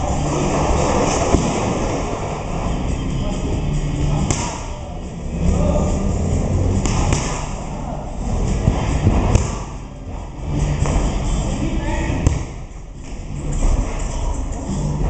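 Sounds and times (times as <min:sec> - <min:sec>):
punches smacking pads: 0:04.2 - 0:04.7, 0:06.8 - 0:07.6, 0:08.6 - 0:09.8, 0:12.2 - 0:12.6.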